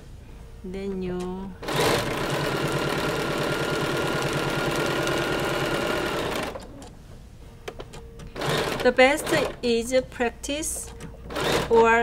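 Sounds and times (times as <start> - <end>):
sewing machine stitching: 1.6 - 6.9, 8.4 - 9.6, 10.8 - 12.0.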